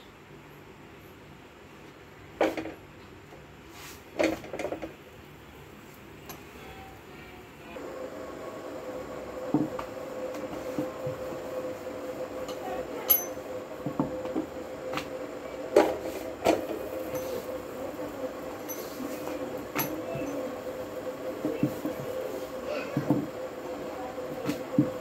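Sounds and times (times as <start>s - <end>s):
rolling pin rolling dough: 9.2s - 25.0s.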